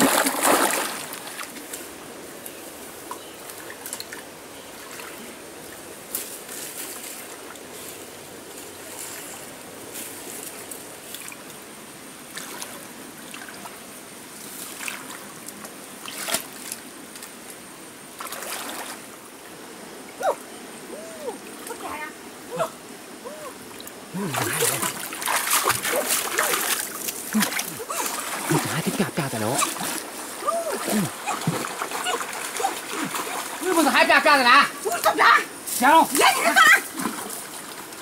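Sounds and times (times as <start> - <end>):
splashing and sloshing water: 0.0 - 2.0, 3.5 - 8.0, 12.3 - 17.5, 18.1 - 19.3, 23.6 - 38.0
water trickling: 23.6 - 38.0.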